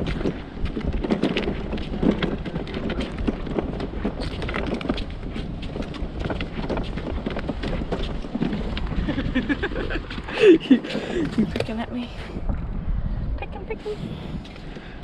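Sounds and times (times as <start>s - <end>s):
footsteps on sand and shells: 0.0s - 11.7s
wind on microphone: 0.0s - 15.0s.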